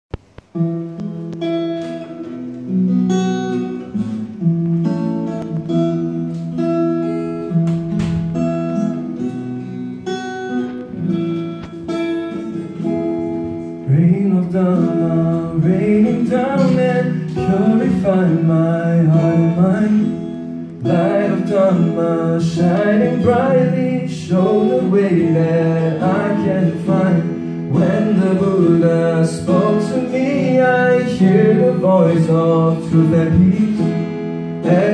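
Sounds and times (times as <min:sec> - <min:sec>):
acoustic guitar playing: 0:00.1 - 0:34.9
man singing: 0:13.8 - 0:34.9.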